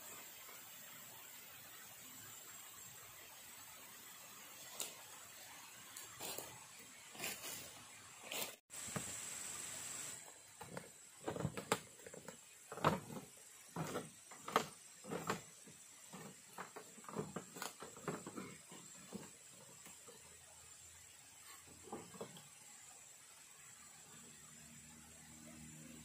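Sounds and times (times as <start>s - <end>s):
irregular knocks and thuds: 10.6s - 19.8s
faint high whine: 12.5s - 26.0s.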